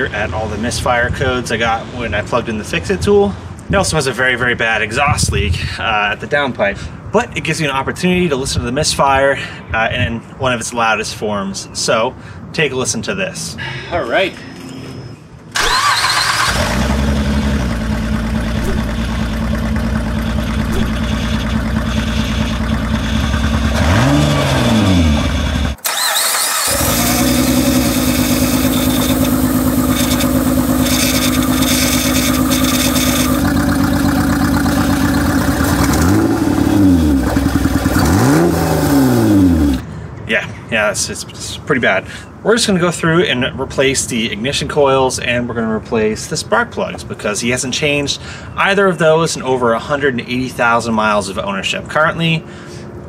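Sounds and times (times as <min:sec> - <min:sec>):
engine revving: 0:15.6 - 0:39.8
misfiring engine with exhaust leak: 0:15.6 - 0:39.8.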